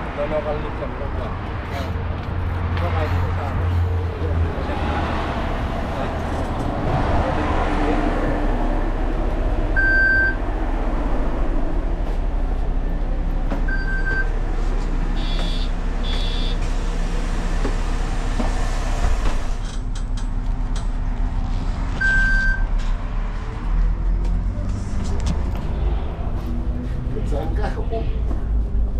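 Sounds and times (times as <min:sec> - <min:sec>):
bus engine running: 0:00.0 - 0:28.9
short electronic beeps: 0:15.2 - 0:16.6, 0:22.0 - 0:22.6.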